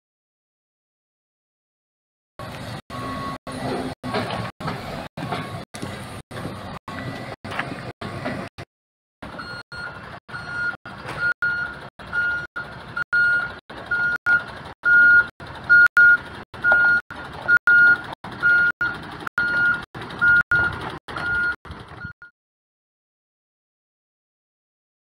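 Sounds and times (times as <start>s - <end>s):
diesel engine running: 2.4s - 22.2s
reversing alarm beeping: 2.9s - 7.4s, 9.3s - 22.3s.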